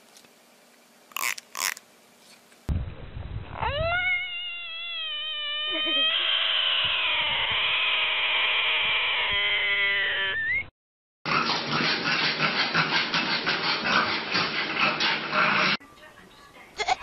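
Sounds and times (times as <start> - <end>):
animal long pitched cry: 3.6 - 10.6.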